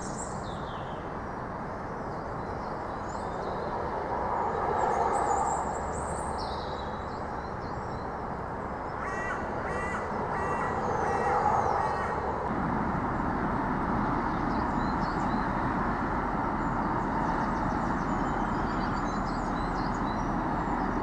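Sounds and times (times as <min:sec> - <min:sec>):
low background rumble: 0:02.2 - 0:21.0
crow cawing: 0:09.0 - 0:12.4.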